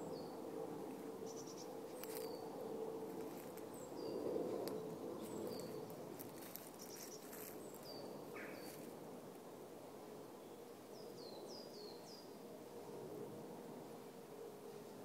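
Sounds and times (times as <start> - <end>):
small bird calling: 1.2 - 2.5, 3.3 - 8.9.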